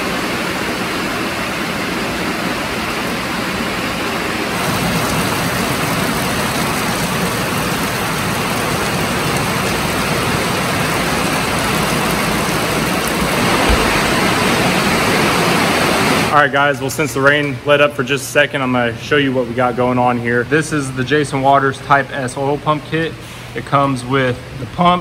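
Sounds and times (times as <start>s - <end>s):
heavy rain pouring: 0.0s - 16.4s
low bump: 13.2s - 15.4s.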